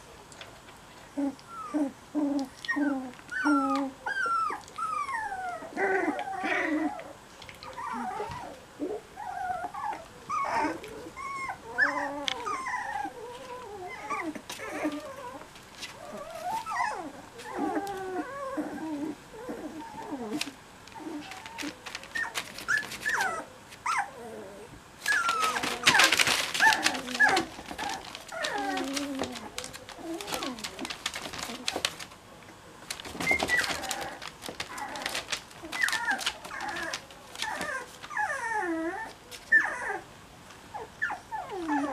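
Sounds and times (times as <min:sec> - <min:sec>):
puppies whimpering and squealing: 0:01.2 - 0:32.1, 0:33.0 - 0:40.1, 0:40.7 - 0:41.9
loud rustling: 0:19.5 - 0:23.4, 0:25.0 - 0:38.6.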